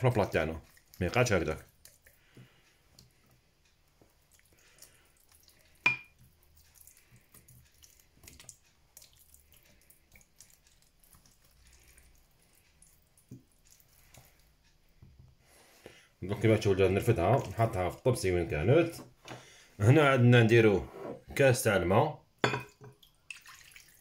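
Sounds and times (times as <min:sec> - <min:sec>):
brush dabbing and squelching: 0:00.0 - 0:19.0
brush clinking on dishware: 0:05.8 - 0:06.2, 0:22.4 - 0:22.8.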